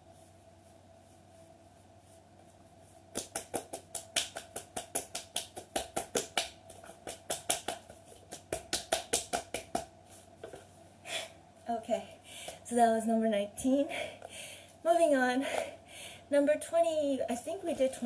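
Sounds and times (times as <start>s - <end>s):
hands tapping rapidly on body: 3.1s - 9.9s.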